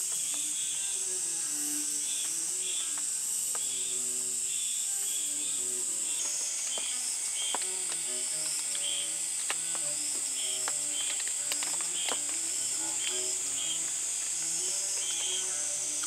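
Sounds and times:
high-pitched insect chorus: 0.0 - 16.0
faint clicks: 2.1 - 3.9, 6.0 - 16.0.

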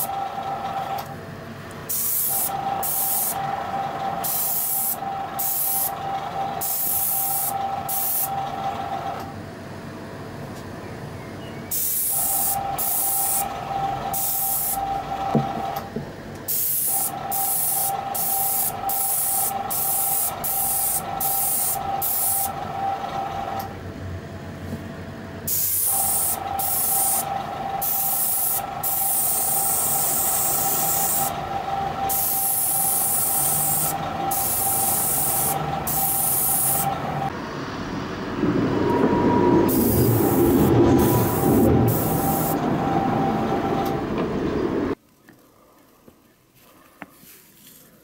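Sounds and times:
steady mechanical hum: 0.0 - 48.0
airbrush air hissing: 1.9 - 3.4, 4.2 - 6.0, 6.6 - 8.3, 11.7 - 13.5, 14.1 - 14.9, 16.5 - 22.6, 25.5 - 31.4, 32.1 - 37.0, 39.7 - 42.6
low rumble: 37.3 - 45.0.

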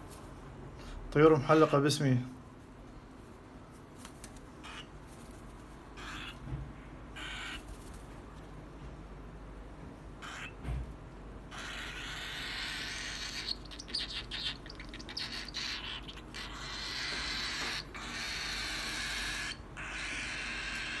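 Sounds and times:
cockatiels making raspy noise: 6.0 - 6.4, 7.2 - 7.9, 10.2 - 10.6, 11.5 - 21.0.

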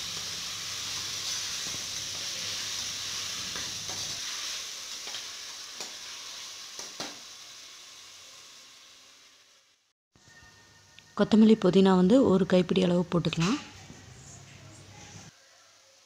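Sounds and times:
vegetables sizzling in hot oil: 0.0 - 9.9.

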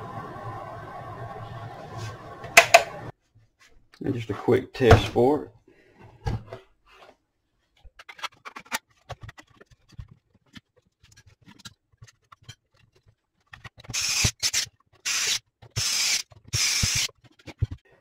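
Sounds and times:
handling clicks and scrapes: 6.5 - 18.0.

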